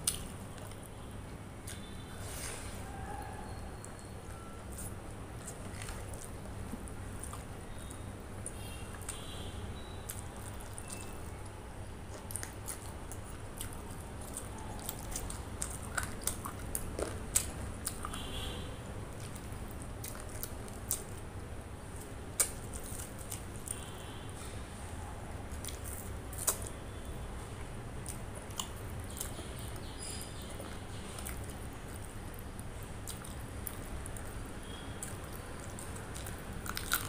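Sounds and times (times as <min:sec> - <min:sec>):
wet squishing and chewing: 0:00.0 - 0:02.0, 0:02.8 - 0:37.0
mouth clicks and smacks: 0:22.4 - 0:23.8, 0:25.6 - 0:26.8.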